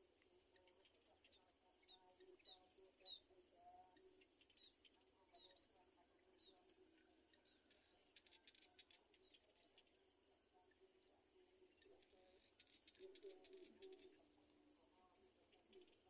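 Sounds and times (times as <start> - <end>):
high-pitched bird chirps: 11.0 - 14.3.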